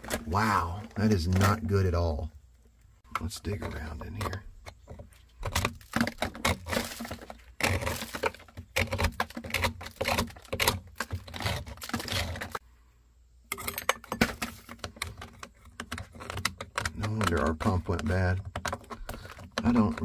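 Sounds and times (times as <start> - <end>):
screwdriver scraping wet sediment: 5.4 - 12.6.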